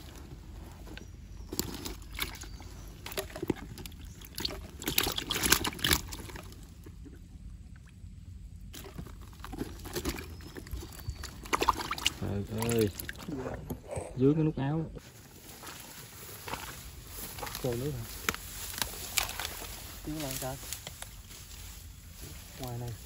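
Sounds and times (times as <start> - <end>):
rustling in dry leaves: 15.0 - 23.0.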